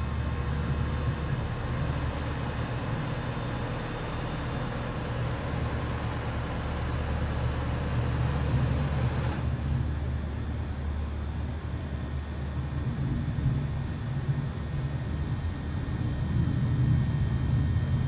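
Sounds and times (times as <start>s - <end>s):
low engine hum: 0.0s - 18.0s.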